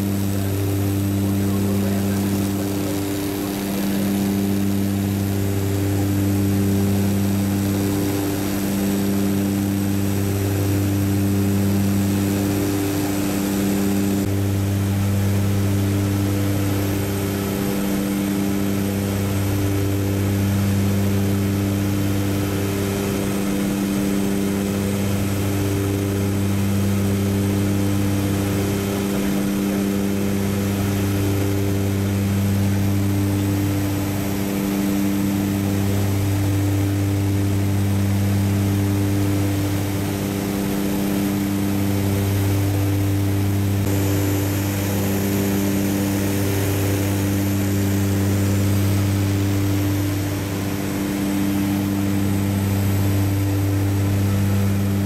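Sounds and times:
light aircraft engine droning: 0.0 - 55.0.

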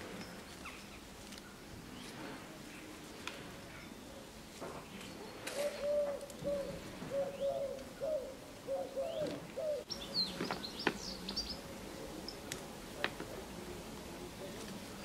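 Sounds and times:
pigeon cooing: 5.5 - 9.9.

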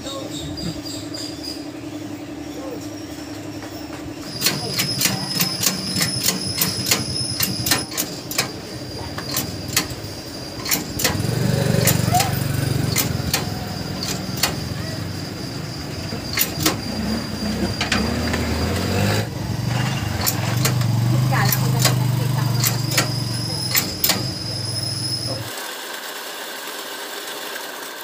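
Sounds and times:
low motor drone: 8.2 - 25.4.

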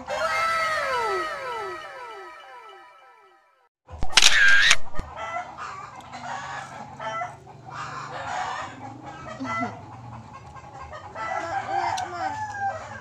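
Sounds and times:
chickens clucking: 5.0 - 13.0.

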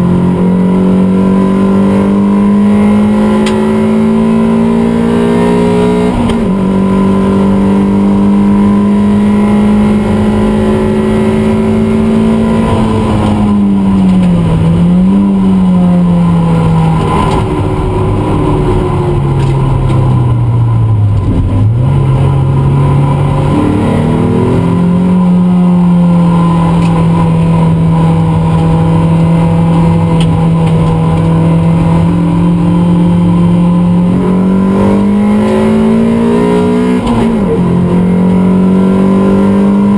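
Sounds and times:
race car engine: 0.0 - 39.9.

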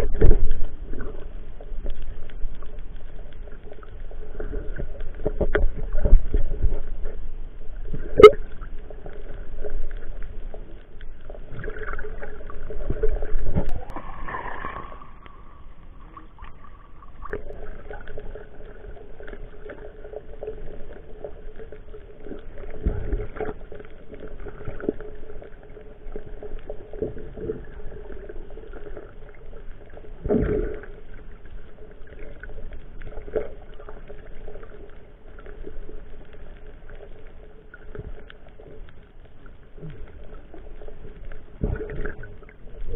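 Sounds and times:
muffled underwater noise: 7.9 - 23.4.

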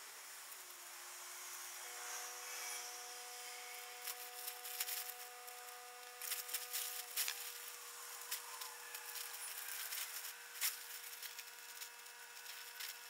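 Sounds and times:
faint steady tones: 0.0 - 13.0
nylon tent rustling and crinkling: 3.7 - 13.0.

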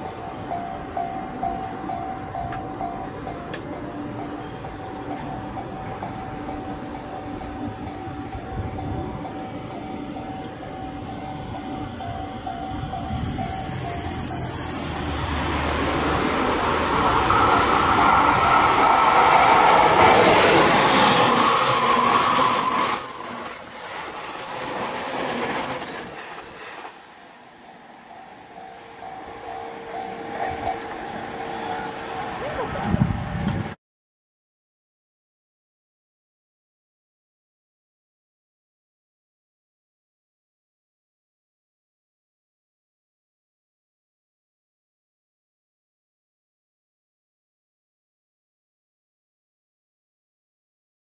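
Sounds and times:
train rumble passing: 0.0 - 33.8
wheels squealing on curve: 13.4 - 27.9.

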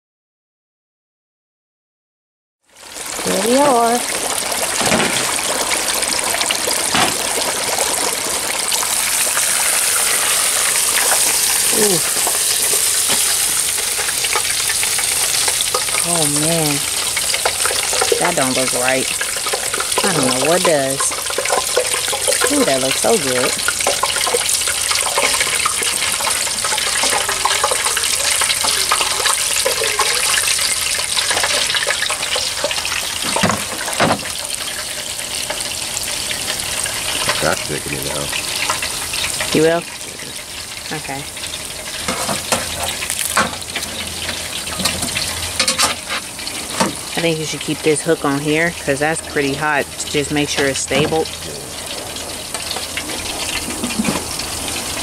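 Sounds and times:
hot oil bubbling and sizzling: 2.6 - 55.0.

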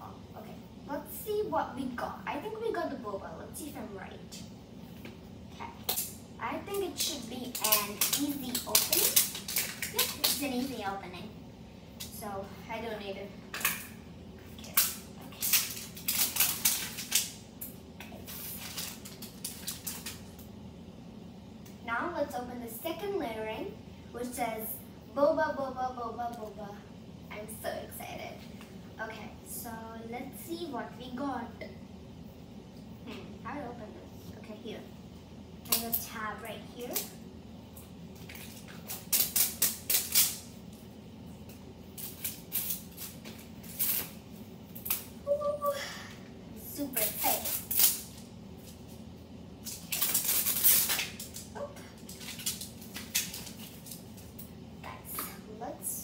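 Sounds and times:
plastic wrapping crinkling: 6.7 - 10.8, 14.6 - 17.4, 18.2 - 20.4, 38.1 - 40.8, 41.9 - 45.2, 46.8 - 54.4.

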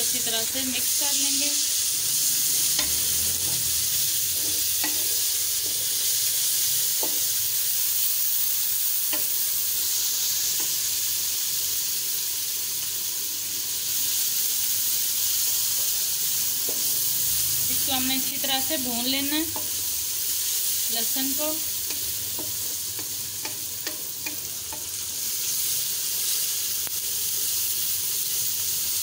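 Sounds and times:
onions sizzling in hot oil: 0.0 - 29.0
spatula clicking against pan: 21.8 - 25.0.

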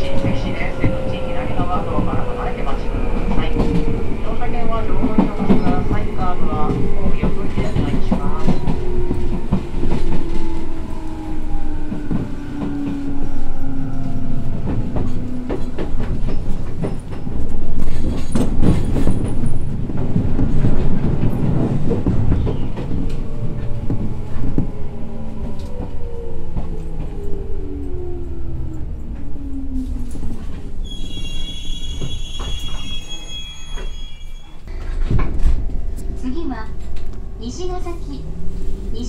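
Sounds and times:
clacks at rail joints: 4.7 - 10.5, 14.6 - 24.8.

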